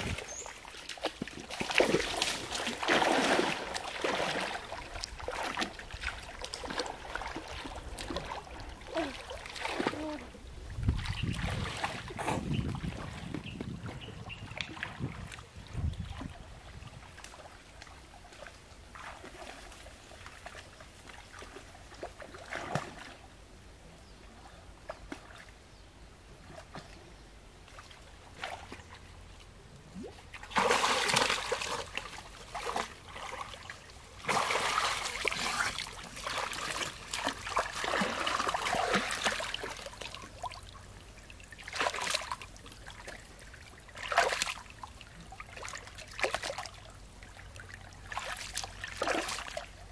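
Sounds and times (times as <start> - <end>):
water splashing and sloshing: 0.0 - 23.4, 24.3 - 25.7, 26.3 - 49.9.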